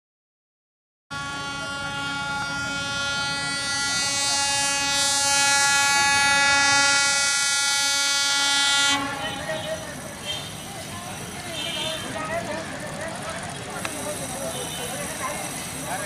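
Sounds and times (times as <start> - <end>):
locomotive horn blast: 1.1 - 10.8, 11.4 - 12.2.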